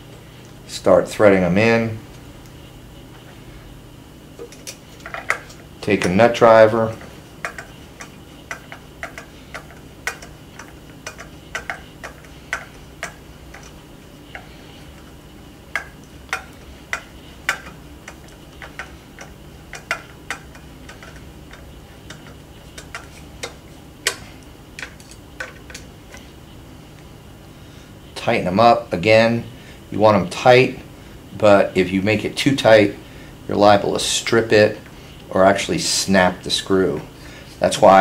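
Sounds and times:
nut driver clicking on screws: 7.4s - 13.7s.

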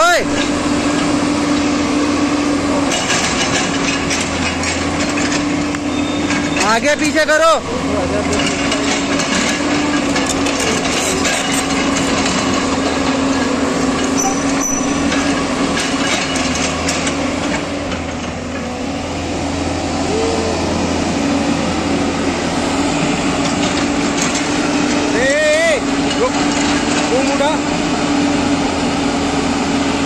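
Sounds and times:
excavator engine hum: 0.0s - 30.0s
metallic clanks: 8.2s - 18.7s.

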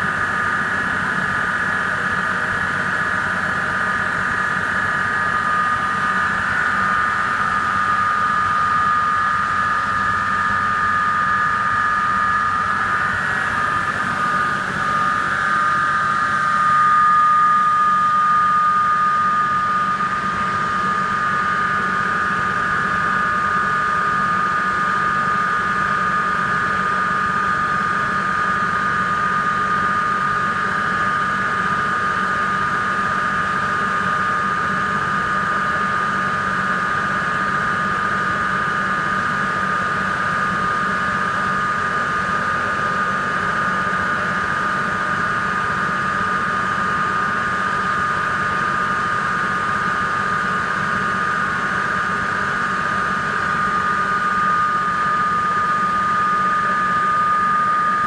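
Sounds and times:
centrifugal extractor high whine: 0.0s - 58.0s.

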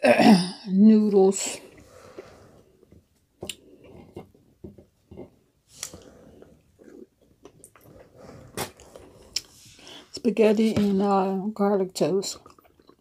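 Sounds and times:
chewing and crunching food: 5.7s - 9.6s, 12.3s - 13.0s.

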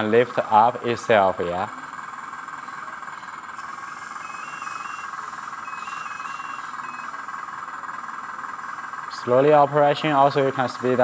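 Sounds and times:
electric pump whirring: 1.6s - 9.0s
servo whines: 2.6s - 7.2s.

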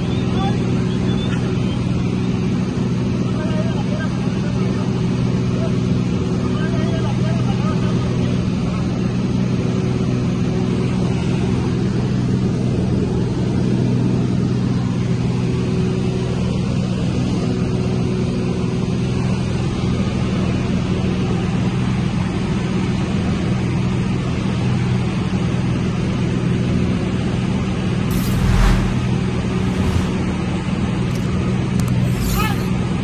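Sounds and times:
light aircraft engine droning: 28.1s - 32.5s.

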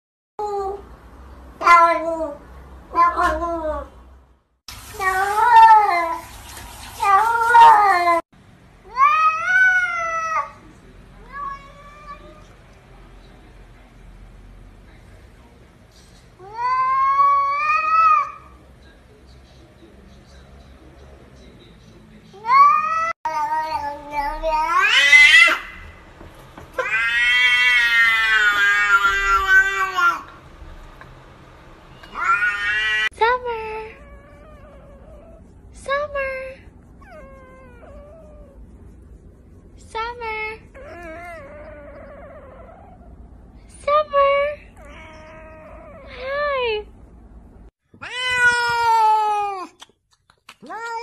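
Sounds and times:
cats meowing: 22.4s - 25.9s, 26.7s - 30.3s, 32.0s - 33.1s, 44.8s - 46.1s, 48.0s - 49.7s.

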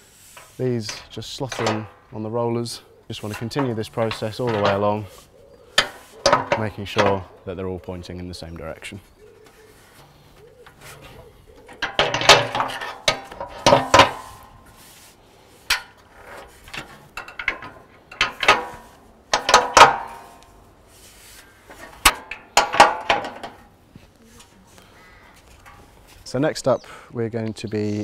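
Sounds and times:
metal louvres clanking and rattling: 0.3s - 7.5s, 9.9s - 14.9s, 15.6s - 20.6s, 21.5s - 23.8s.

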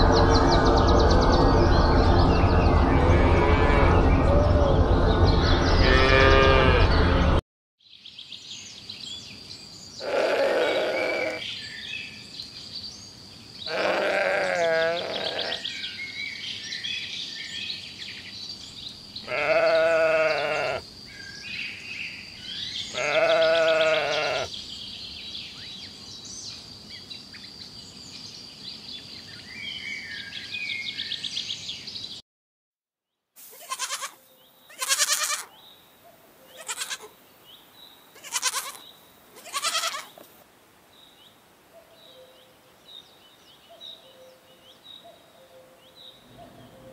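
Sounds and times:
goat bleating: 5.8s - 6.9s, 10.0s - 11.4s, 13.7s - 15.6s, 19.3s - 20.8s, 22.9s - 24.5s, 33.5s - 35.5s, 36.5s - 37.1s, 38.2s - 38.8s, 39.4s - 40.2s
sheep bleating: 5.8s - 7.1s, 10.0s - 11.4s, 13.7s - 15.7s, 19.2s - 20.8s, 22.9s - 24.5s, 33.5s - 35.5s, 36.5s - 37.1s, 38.2s - 38.8s, 39.4s - 40.2s.

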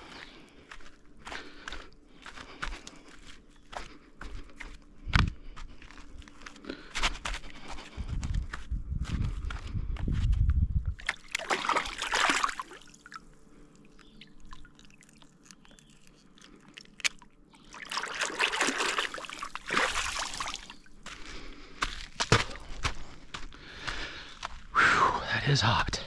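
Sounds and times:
low rumble: 8.0s - 11.0s
water splashing at shore: 11.0s - 13.2s, 16.8s - 20.7s.

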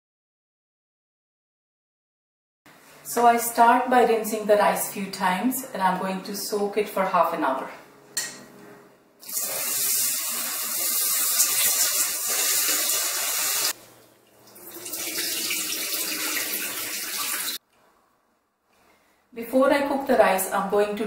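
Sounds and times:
rice rinsed by hand: 9.2s - 17.6s.

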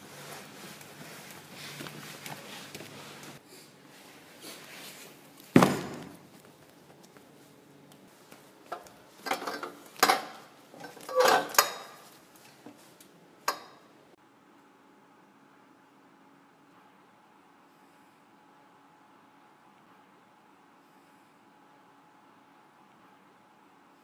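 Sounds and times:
loud thump: 5.6s - 6.2s.

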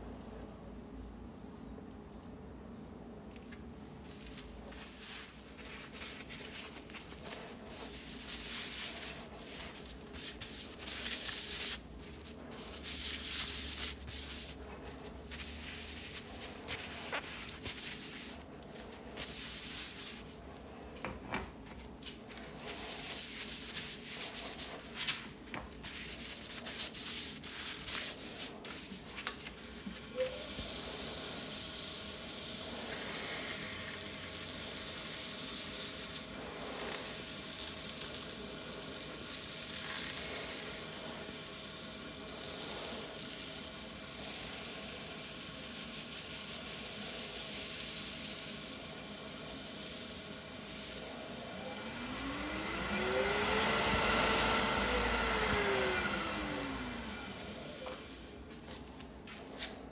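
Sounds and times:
paper towel rubbing a bowl: 4.4s - 20.8s, 22.1s - 29.2s, 32.9s - 51.4s
towel hissing on spinning bowl: 5.0s - 20.4s, 30.0s - 58.2s
lathe motor whine: 50.3s - 58.6s.

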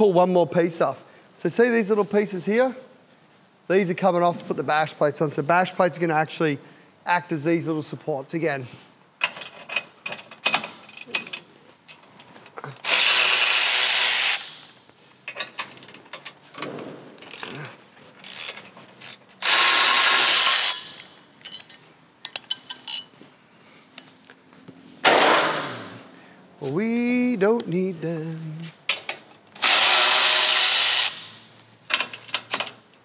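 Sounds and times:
power ratchet running: 12.8s - 14.6s, 19.4s - 21.1s, 29.6s - 31.4s.

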